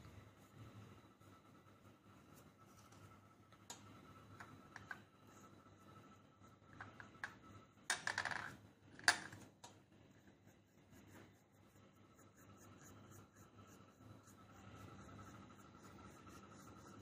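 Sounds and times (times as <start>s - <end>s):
shell tapping on wooden table: 7.9s - 8.5s.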